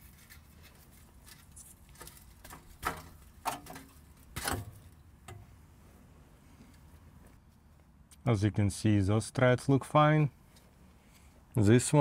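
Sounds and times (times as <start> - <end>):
knocks and scrapes on exhaust pipe: 0.8 - 5.6.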